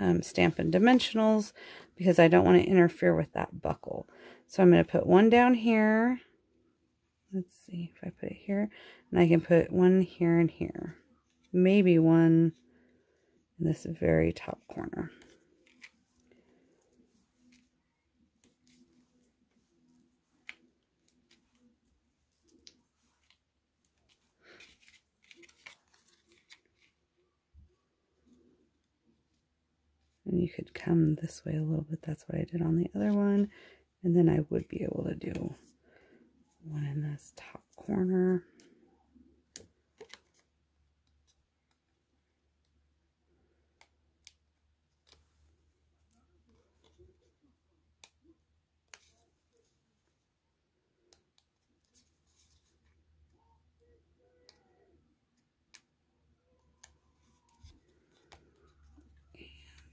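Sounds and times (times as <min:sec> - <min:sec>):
soft paper rustles: 0:14.4 - 0:30.8, 0:37.4 - 0:41.9, 0:44.8 - 0:50.3, 0:51.0 - 0:55.1, 0:56.5 - 0:59.9
paper rustling and clicking: 0:22.4 - 0:27.0.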